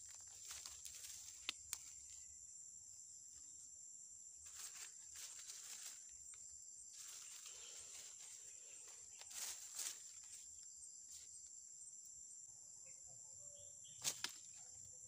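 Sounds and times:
dry leaf litter rustling: 0:00.0 - 0:02.0, 0:04.5 - 0:06.1, 0:07.0 - 0:10.4
high-pitched insect drone: 0:00.0 - 0:15.0.

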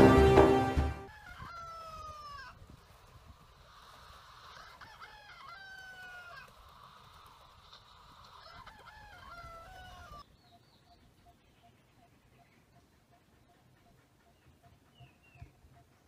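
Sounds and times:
rooster crowing: 0:00.9 - 0:02.6, 0:04.5 - 0:06.5, 0:08.4 - 0:10.2
steady hiss: 0:02.6 - 0:05.0, 0:06.0 - 0:08.8.

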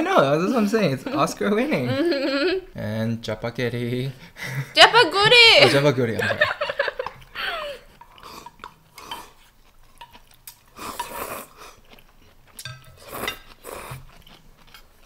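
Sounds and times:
chopsticks and bowls clinking: 0:07.0 - 0:11.4, 0:12.4 - 0:14.9
chewing and mouth sounds: 0:07.0 - 0:15.0.

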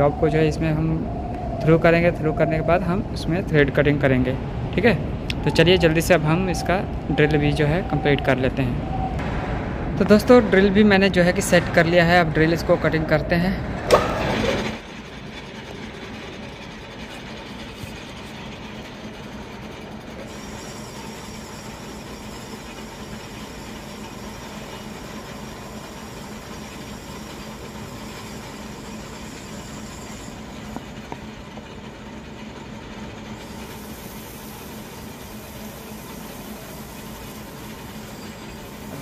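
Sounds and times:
lathe hum and rumble: 0:00.0 - 0:39.0
drill cutting metal: 0:20.2 - 0:30.8, 0:33.4 - 0:39.0.

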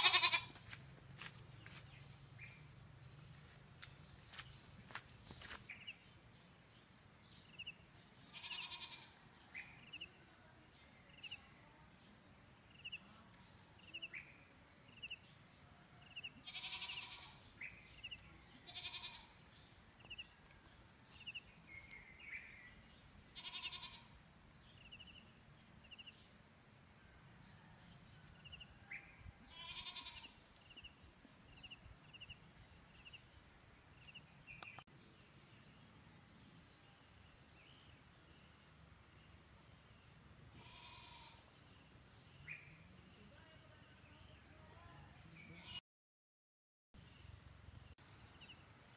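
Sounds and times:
goats bleating: 0:00.0 - 0:00.6, 0:16.5 - 0:17.3, 0:18.7 - 0:19.3.

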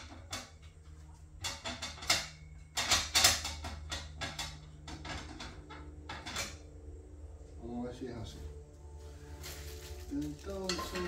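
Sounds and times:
metal parts clicking and clanking: 0:00.0 - 0:06.8, 0:10.2 - 0:11.0.

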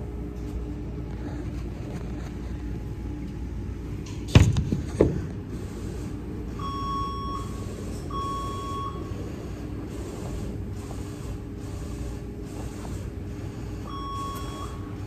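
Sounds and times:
low machinery hum: 0:00.0 - 0:15.0
electronic equipment beeps: 0:06.6 - 0:09.2, 0:13.8 - 0:15.0.

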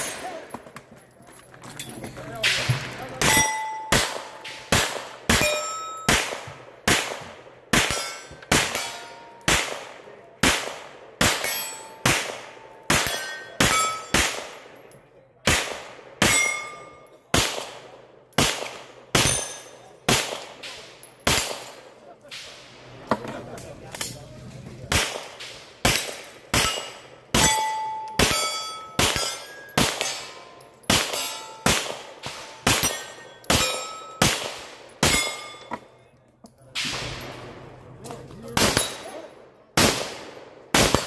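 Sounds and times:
steel targets clanging: 0:00.0 - 0:04.7, 0:05.3 - 0:06.3, 0:07.8 - 0:09.5, 0:11.3 - 0:14.4, 0:16.2 - 0:17.2, 0:25.4 - 0:39.5
pistol shots: 0:02.4 - 0:14.7, 0:15.4 - 0:22.8, 0:24.9 - 0:35.6, 0:38.6 - 0:41.0.

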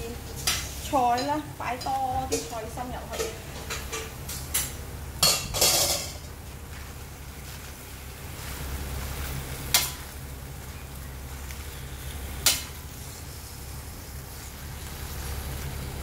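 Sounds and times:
ladle knocking wok: 0:00.0 - 0:06.4, 0:09.7 - 0:10.1
greens sizzling in a wok: 0:00.0 - 0:16.0
metal ladle scraping wok: 0:00.1 - 0:06.3.

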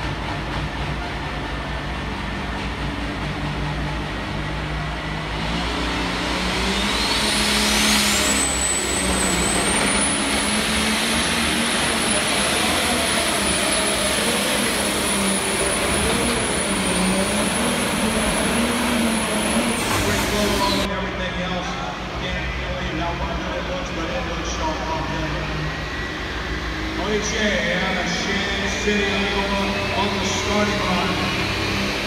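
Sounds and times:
tractor engine under load: 0:00.0 - 0:20.9.

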